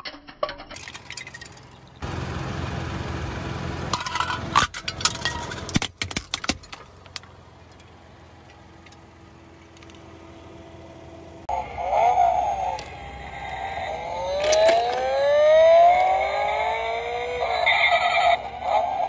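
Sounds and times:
plastic bottles cracking: 0:00.5 - 0:01.9, 0:04.0 - 0:07.3
car tyre rumbling: 0:01.0 - 0:19.0.

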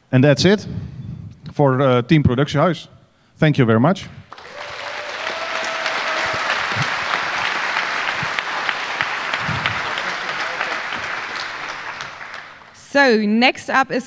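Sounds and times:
audience applauding: 0:04.3 - 0:12.9.

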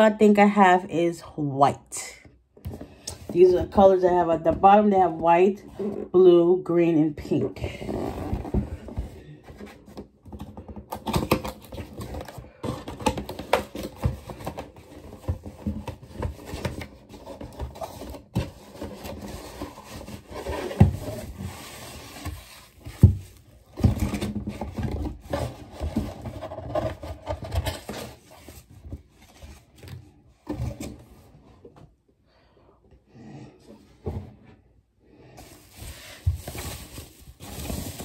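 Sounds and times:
packaging rustling: 0:35.4 - 0:38.0.

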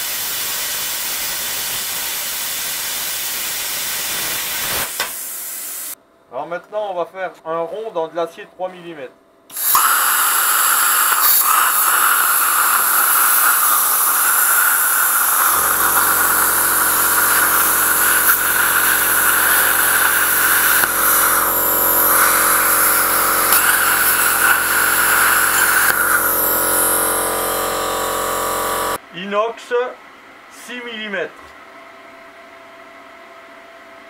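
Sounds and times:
plasma cutter hissing: 0:00.0 - 0:06.0, 0:09.5 - 0:29.0.

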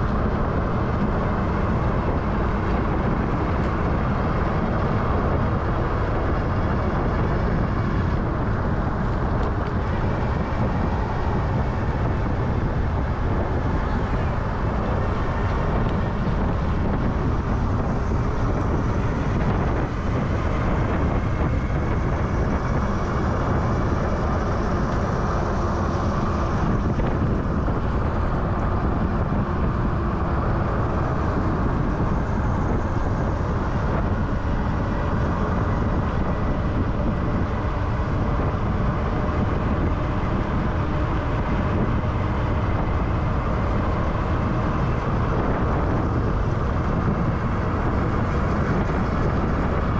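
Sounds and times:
wind rush and road noise: 0:00.0 - 0:49.9.

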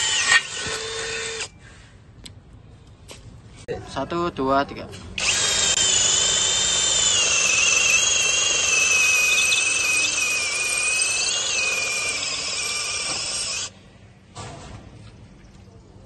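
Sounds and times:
impact drill motor whining: 0:00.0 - 0:01.5, 0:05.2 - 0:13.7.

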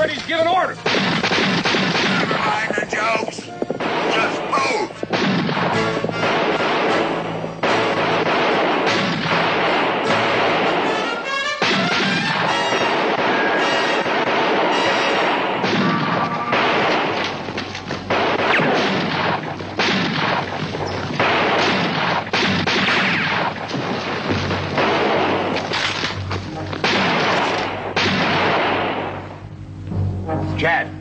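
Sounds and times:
background music score: 0:00.0 - 0:17.4, 0:24.4 - 0:31.0
gunshots: 0:00.0 - 0:29.4.

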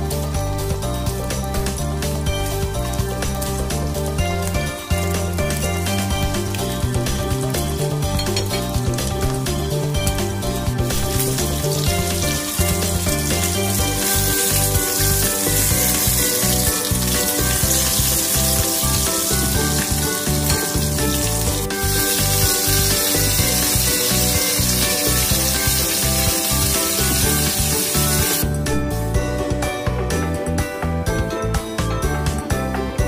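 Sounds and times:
background music with beat: 0:00.0 - 0:33.0
fish sizzling in oil: 0:10.9 - 0:28.4.

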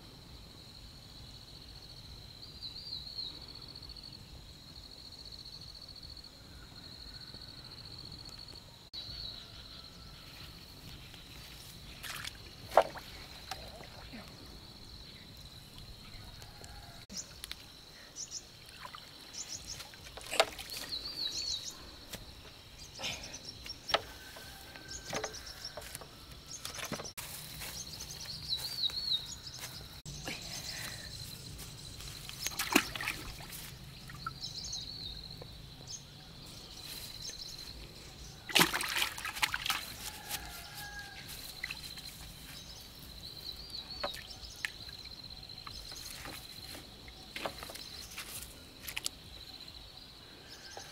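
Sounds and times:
water sloshing and splashing: 0:11.5 - 0:14.4, 0:18.6 - 0:21.3, 0:32.0 - 0:34.4, 0:38.5 - 0:40.7.

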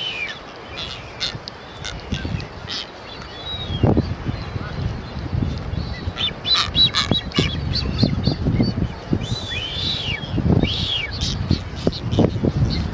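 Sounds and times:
seabirds calling short high notes: 0:00.0 - 0:12.9
bird whistles rising and falling: 0:09.2 - 0:11.2.

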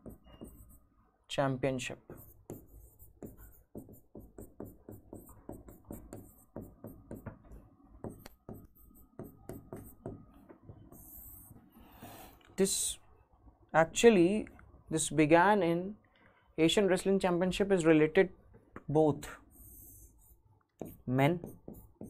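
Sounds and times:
pen tapping and scratching on board: 0:00.0 - 0:00.8, 0:02.0 - 0:11.5, 0:20.8 - 0:22.0.

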